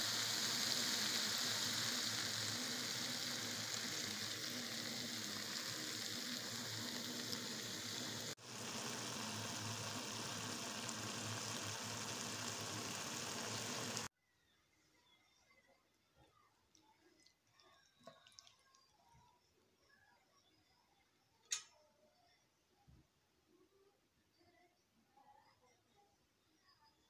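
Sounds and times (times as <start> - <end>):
stems sizzling in a pan: 0.0 - 14.1, 16.7 - 19.3, 21.4 - 21.7.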